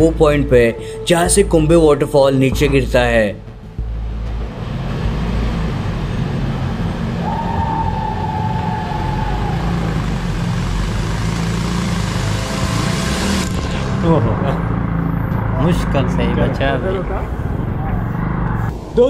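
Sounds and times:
motorcycle engine running: 3.7s - 18.2s
rushing noise: 4.4s - 19.0s.

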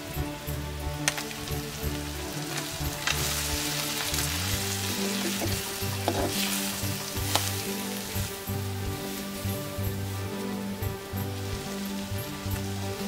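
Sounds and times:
background music: 0.0s - 13.0s
onions sizzling in oil: 0.1s - 13.0s
spoon scraping a clay pot: 5.1s - 6.6s.

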